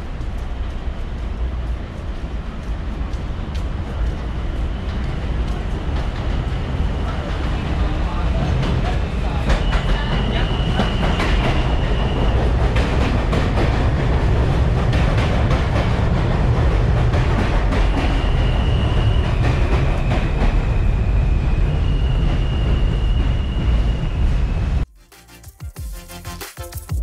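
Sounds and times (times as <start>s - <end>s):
train wheels rumbling on rail: 0.0s - 24.9s.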